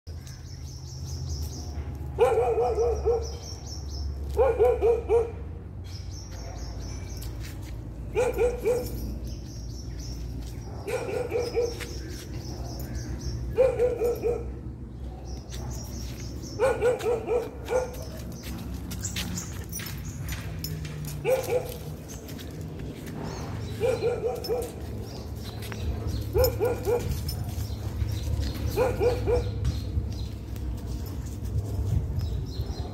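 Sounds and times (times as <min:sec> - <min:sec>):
dog barking: 0:02.1 - 0:03.4, 0:04.3 - 0:05.4, 0:08.1 - 0:09.0, 0:10.7 - 0:12.0, 0:13.5 - 0:14.6, 0:16.6 - 0:18.2, 0:21.2 - 0:21.8, 0:23.7 - 0:24.8, 0:26.0 - 0:27.6, 0:28.7 - 0:29.6.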